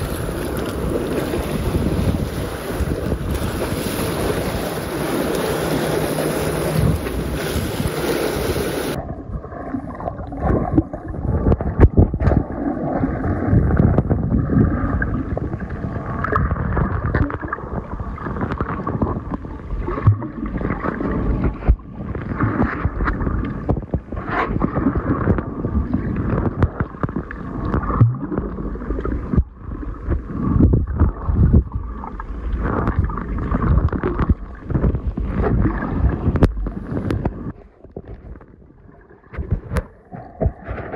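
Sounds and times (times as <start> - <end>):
water sloshing: 0.0 - 9.0
underwater gurgling: 0.0 - 40.9.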